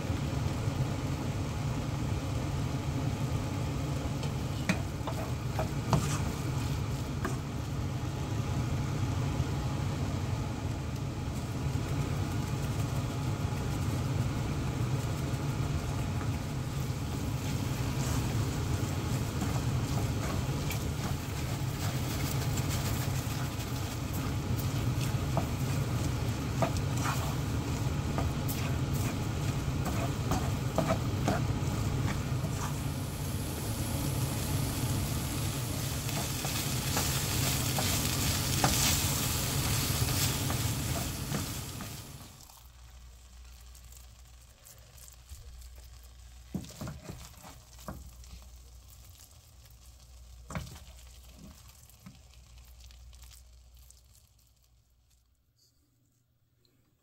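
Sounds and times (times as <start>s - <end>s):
steady low hum: 0.0s - 46.4s
rice sizzling in a pan: 0.0s - 55.2s
wooden spatula scraping a pan: 4.5s - 7.5s, 17.4s - 33.0s, 35.8s - 42.2s.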